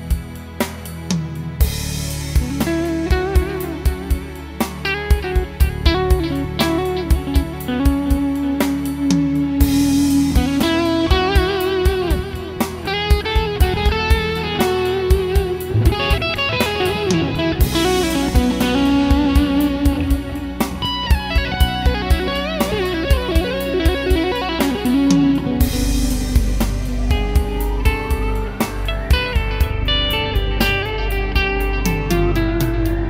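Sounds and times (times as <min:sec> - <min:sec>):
overdriven electric guitar lead: 0:02.4 - 0:33.0
sustained low guitar note: 0:09.2 - 0:33.0.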